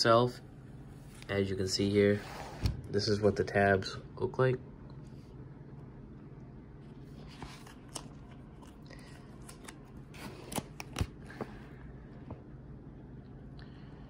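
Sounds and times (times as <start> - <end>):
paper pages rustling: 6.8 - 11.6.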